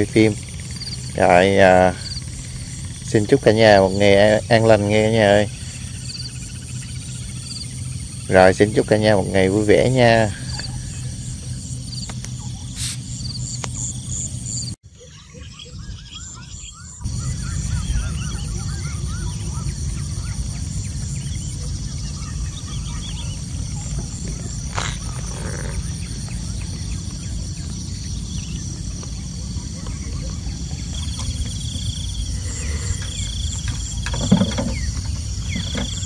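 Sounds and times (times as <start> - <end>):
insect trill: 0.0 - 36.0
small birds chirping: 0.0 - 36.0
low rumble: 15.6 - 36.0.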